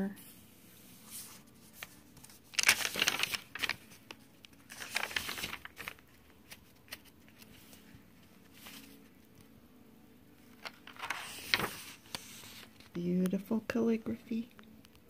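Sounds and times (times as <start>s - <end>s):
paper pages turning: 0.8s - 9.5s, 10.4s - 13.4s.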